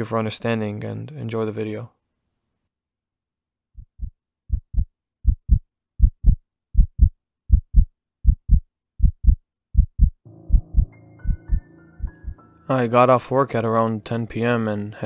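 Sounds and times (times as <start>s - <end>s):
heartbeat thumps: 3.8s - 12.4s.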